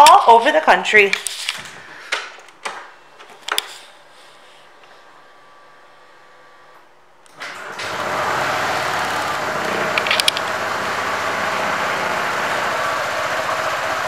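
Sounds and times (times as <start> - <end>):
scooter engine starting and idling: 7.3 - 14.0.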